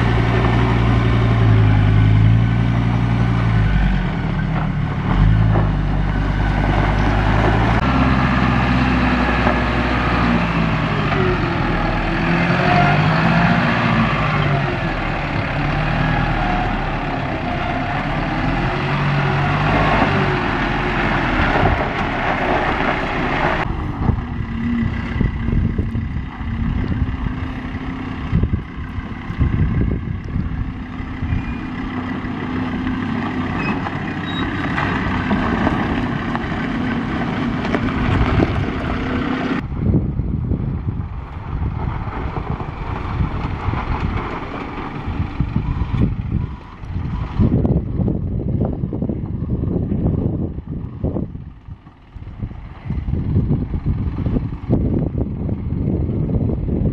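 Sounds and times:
off-road vehicle engines revving: 0.0s - 40.0s.

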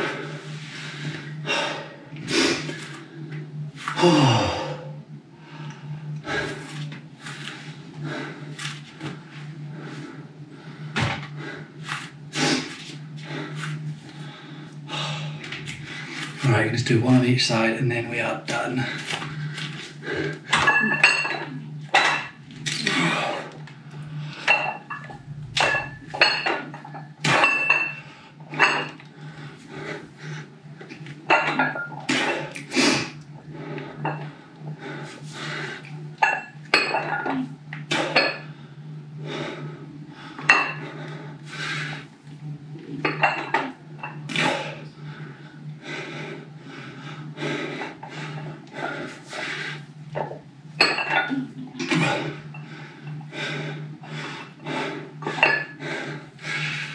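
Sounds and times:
steady low hum: 0.0s - 56.9s
dumbbell plates clinking: 20.5s - 22.3s, 24.4s - 29.0s, 31.3s - 32.6s, 36.2s - 38.5s, 43.0s - 44.4s.

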